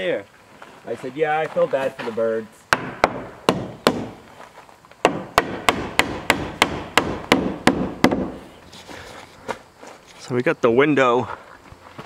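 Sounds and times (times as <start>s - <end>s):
hammer nailing wood: 2.7s - 4.2s, 5.0s - 8.4s.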